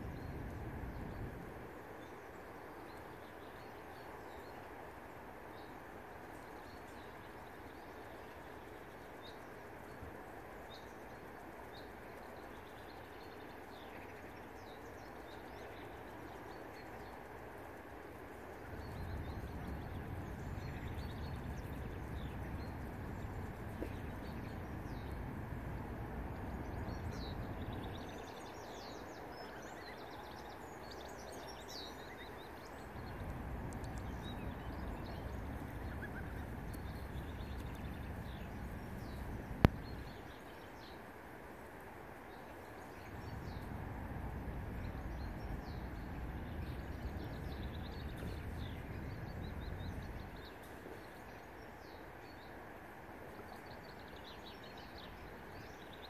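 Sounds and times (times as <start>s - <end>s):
small birds chirping: 0.0s - 56.0s
low rumble: 32.8s - 40.2s, 43.0s - 50.5s.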